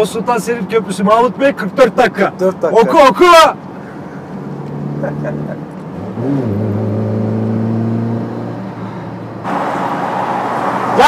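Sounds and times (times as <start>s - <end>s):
road and wind noise: 0.0s - 11.0s
car engine cruising from inside: 3.8s - 11.0s.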